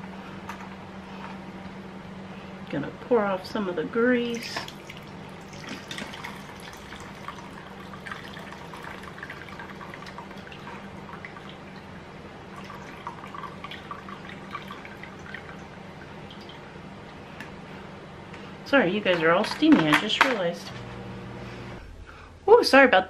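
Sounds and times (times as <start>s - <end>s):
steady low hum: 0.0s - 23.0s
grease dripping into a cup: 4.7s - 11.9s, 12.5s - 16.6s.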